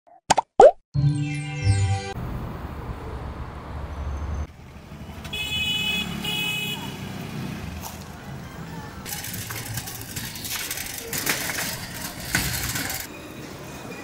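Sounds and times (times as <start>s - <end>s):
street traffic: 1.8s - 14.0s
vehicle engine rumbling: 2.2s - 13.1s
horn honks: 5.1s - 7.1s.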